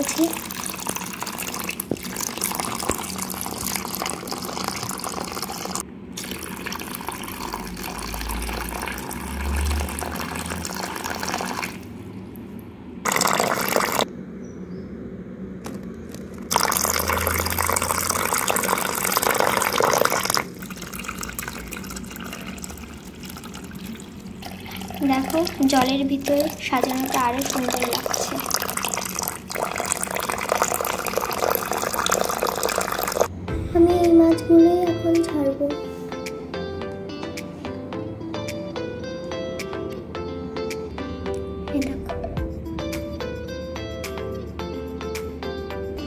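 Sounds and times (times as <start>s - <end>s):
water pouring and splashing: 0.0s - 12.0s, 13.0s - 14.1s, 16.2s - 33.3s.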